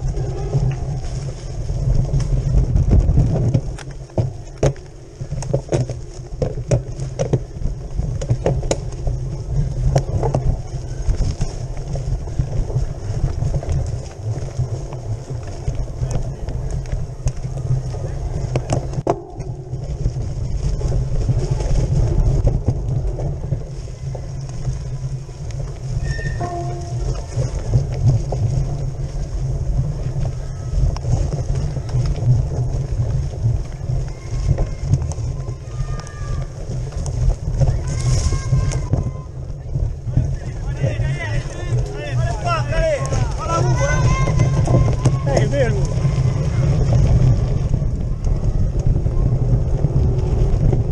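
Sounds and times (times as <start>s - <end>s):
bicycle rattling over dirt trail: 0.0s - 50.9s
wind rumble on microphone: 0.0s - 50.9s
bike knocks on rough ground: 2.5s - 9.1s.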